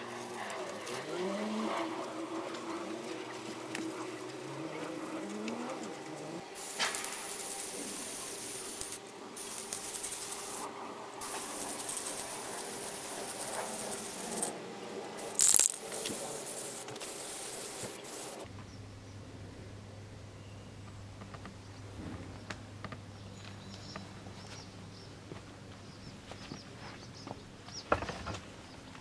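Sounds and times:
sharp loud noise: 0:06.5 - 0:14.5
spray can hissing: 0:06.5 - 0:14.5, 0:15.2 - 0:18.5
low steady hum: 0:18.4 - 0:27.7.

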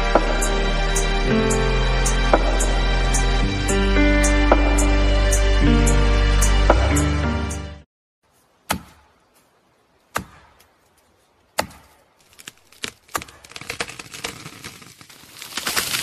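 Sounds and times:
axe chopping wood: 0:08.7 - 0:09.1, 0:10.1 - 0:10.7, 0:11.6 - 0:13.4
wood splintering crackle: 0:12.2 - 0:16.0.

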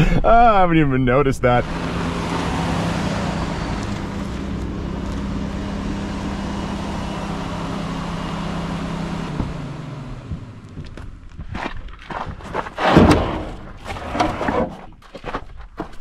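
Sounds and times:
truck engine hum: 0:00.0 - 0:11.6.

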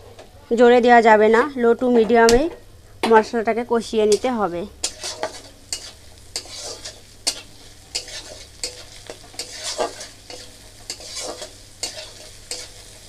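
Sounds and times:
paste sizzling in oil: 0:03.9 - 0:13.0
metal spatula scraping pan: 0:04.1 - 0:13.0.

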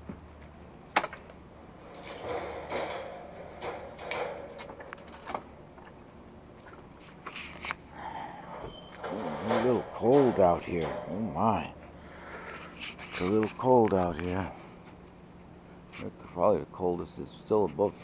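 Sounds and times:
crate door click: 0:00.9 - 0:05.7, 0:08.5 - 0:12.0
wire crate rattling: 0:00.9 - 0:07.0, 0:08.4 - 0:14.2.

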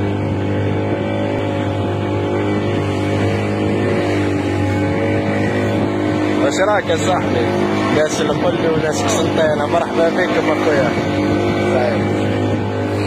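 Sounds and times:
outboard motor droning: 0:00.0 - 0:13.0.

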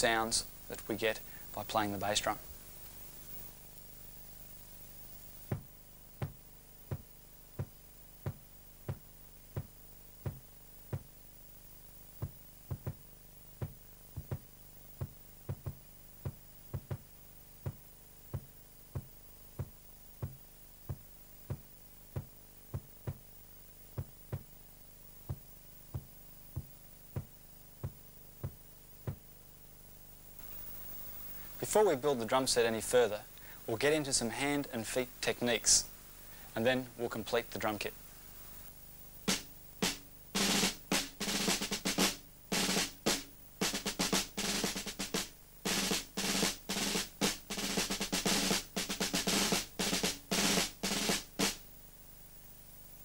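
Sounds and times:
bass drum kicks: 0:05.5 - 0:11.1, 0:12.2 - 0:23.3, 0:24.0 - 0:24.5, 0:25.3 - 0:29.3.

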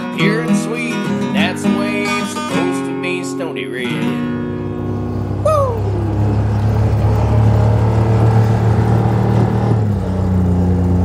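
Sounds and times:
utility vehicle engine running: 0:04.0 - 0:11.0
person whooping: 0:05.4 - 0:06.5.

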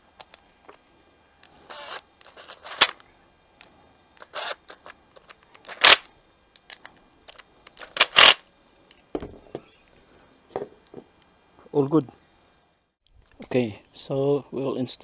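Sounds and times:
cordless electric screwdriver bursts: 0:01.7 - 0:03.0, 0:04.2 - 0:04.8, 0:07.8 - 0:08.4.

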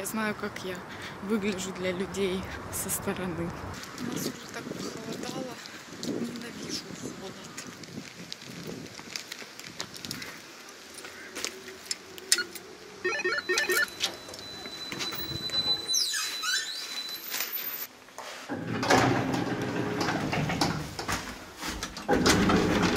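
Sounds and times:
intercom beeps: 0:12.3 - 0:16.4
high electronic tone: 0:12.3 - 0:17.4
door creaking open: 0:13.3 - 0:17.9, 0:18.5 - 0:22.9
shuffling and rustling: 0:19.3 - 0:22.9.

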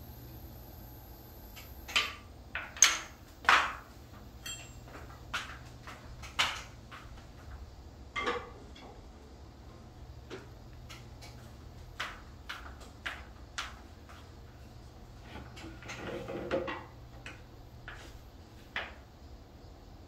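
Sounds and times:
sharp knocks and clatters: 0:02.0 - 0:09.0, 0:10.2 - 0:14.3.

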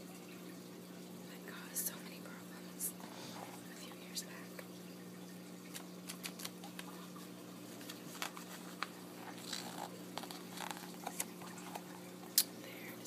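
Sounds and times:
paper pages rustling: 0:07.7 - 0:12.0.

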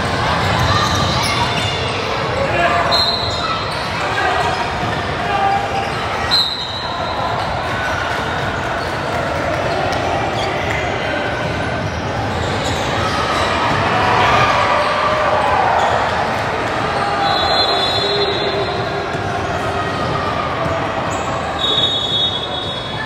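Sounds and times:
voices in a hall: 0:00.0 - 0:23.0
whistle blast: 0:06.3 - 0:06.9, 0:17.2 - 0:18.4, 0:21.6 - 0:23.0.

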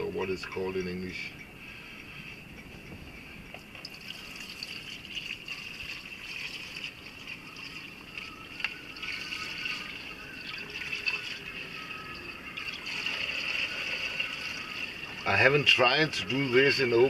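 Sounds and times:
fuel trickling into funnel: 0:03.7 - 0:17.0.

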